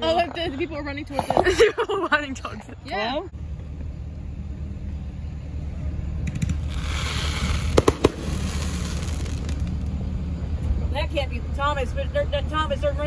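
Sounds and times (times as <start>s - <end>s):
low rumble: 3.3s - 12.4s
fireworks sharp bangs: 6.2s - 10.0s
fireworks crackling hiss: 6.3s - 10.2s.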